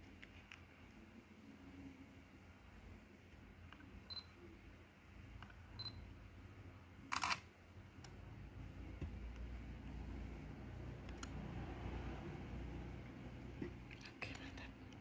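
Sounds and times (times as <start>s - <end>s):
camera beeps: 5.8s - 6.0s, 7.1s - 7.4s
camera shutter: 7.1s - 7.5s.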